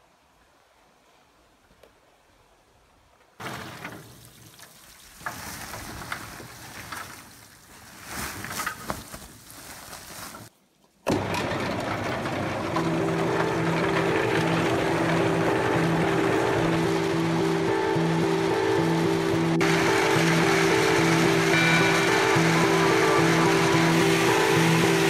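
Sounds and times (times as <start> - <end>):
machine rushing noise: 11.4 - 25.0.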